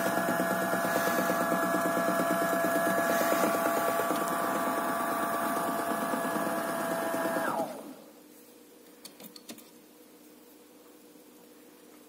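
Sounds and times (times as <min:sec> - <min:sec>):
washing machine whining and rattling: 0:00.0 - 0:08.2.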